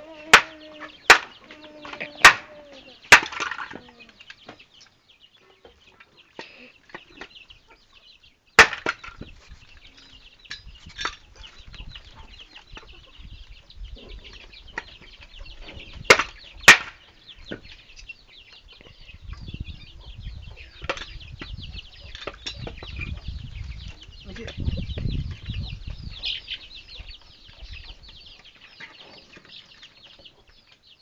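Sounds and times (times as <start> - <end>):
chickens clucking: 0.0 - 31.0
wood chopping knocks and cracks: 1.1 - 1.3, 2.2 - 2.5, 3.1 - 3.8, 8.6 - 9.3, 16.1 - 17.6.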